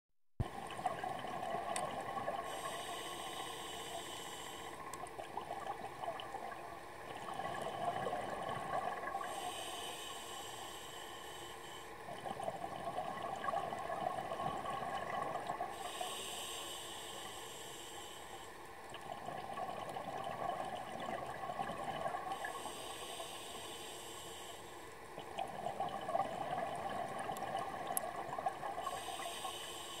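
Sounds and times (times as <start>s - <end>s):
regulator inhale hiss: 2.3s - 5.0s, 9.1s - 12.1s, 15.7s - 18.8s, 22.3s - 25.0s, 28.8s - 30.0s.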